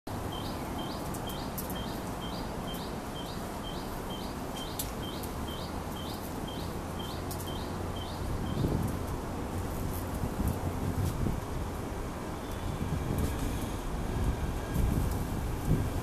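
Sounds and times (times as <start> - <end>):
outdoor background hiss: 0.1 - 16.0
bird chirping: 0.3 - 8.7.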